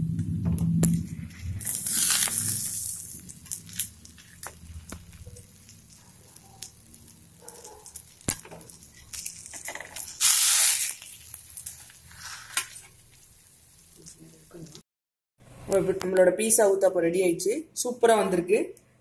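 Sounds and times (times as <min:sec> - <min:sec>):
food sizzling on griddle: 0:01.6 - 0:14.8.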